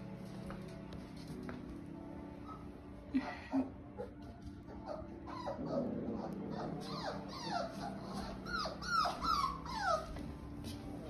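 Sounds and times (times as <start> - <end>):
puppies whining and whimpering: 2.4 - 10.7.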